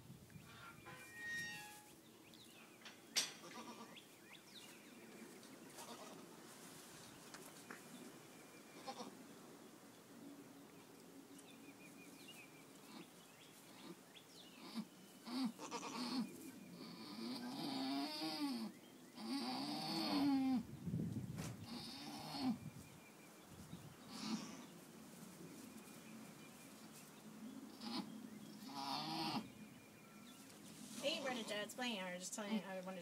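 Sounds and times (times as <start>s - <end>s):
goat bleating: 3.4s - 4.0s, 5.8s - 6.2s, 8.8s - 9.1s, 14.6s - 16.2s.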